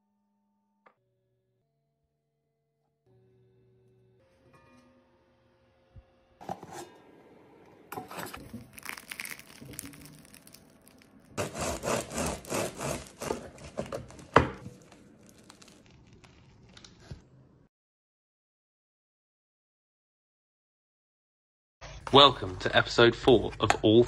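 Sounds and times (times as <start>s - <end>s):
bread crust crackling: 8.3s - 17.3s
bread knife sawing crust: 11.4s - 14.2s.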